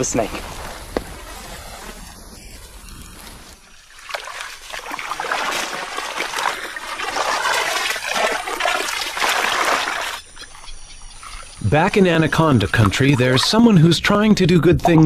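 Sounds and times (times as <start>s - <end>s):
wading through muddy water: 3.5s - 15.0s.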